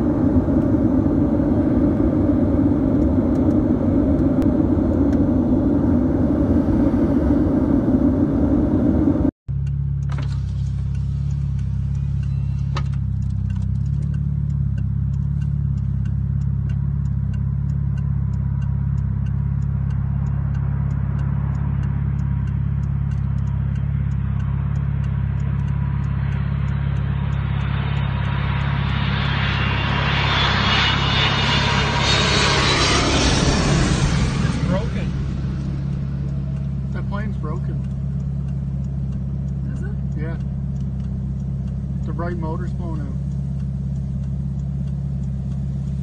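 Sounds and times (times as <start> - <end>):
jet engines hissing and whining: 0.0 - 9.3, 19.8 - 43.2
car interior low rumble: 0.0 - 46.0.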